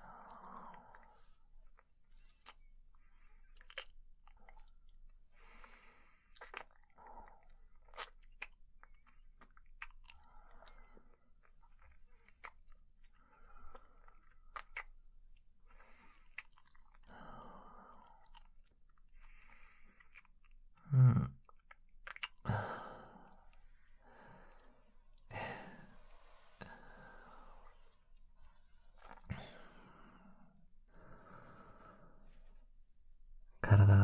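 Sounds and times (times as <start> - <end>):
soft breaths: 15.5 - 20.4, 22.4 - 33.0
kissing lip smacks: 21.7 - 22.4.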